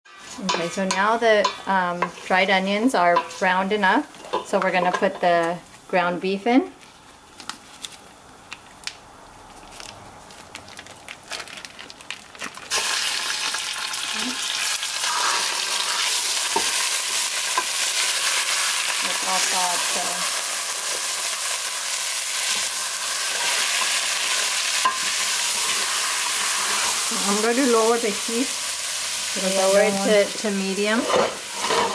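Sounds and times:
wooden spoon scraping a pot: 0.1s - 3.6s, 30.8s - 31.9s
meat sizzling in a pot: 0.1s - 5.8s, 12.6s - 31.9s.

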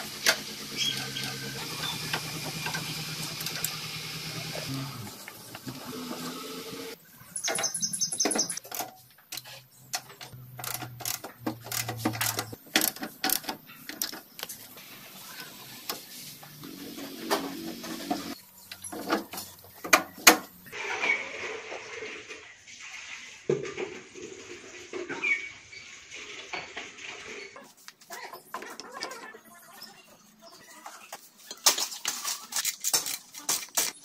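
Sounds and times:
ratchet wrench clicking: 10.6s - 14.1s
metal tools clinking and knocking: 18.6s - 19.8s.

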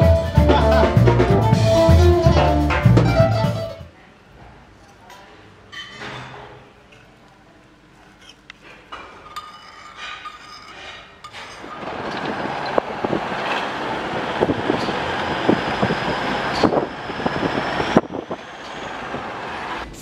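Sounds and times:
car road and wind noise: 11.9s - 20.0s.

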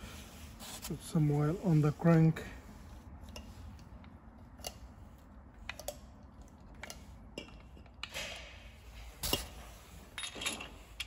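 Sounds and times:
metal parts clicking and tapping: 5.6s - 8.4s, 10.2s - 11.0s.

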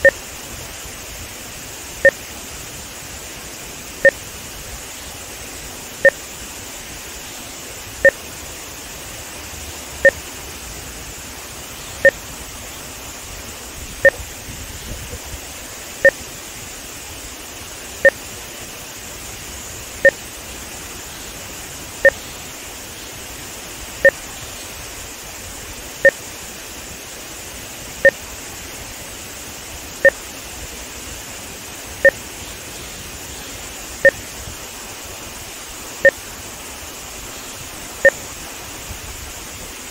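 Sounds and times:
electronic timing beeps: 0.0s - 0.2s, 12.0s - 12.2s, 14.0s - 14.2s, 22.0s - 22.2s
water rushing through spillway: 0.0s - 39.9s.

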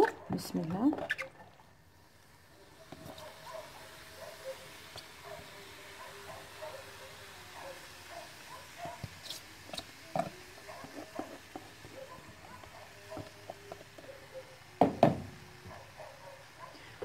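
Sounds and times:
knock: 14.8s - 15.3s.

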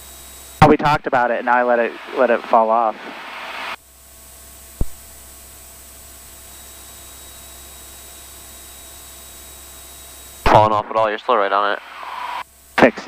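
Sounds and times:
cockpit audio hiss and hum: 0.0s - 13.0s
sharp click: 4.8s - 5.0s.

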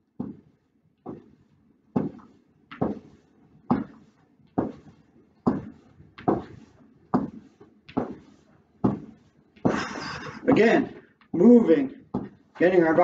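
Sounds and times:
feet thudding on floor: 0.2s - 0.4s, 1.1s - 1.3s, 2.0s - 11.0s, 12.1s - 12.4s.

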